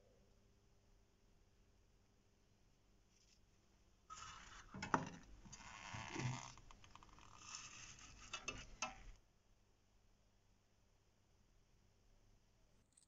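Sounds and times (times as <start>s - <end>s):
hand saw scraping and rustling: 7.4s - 9.1s.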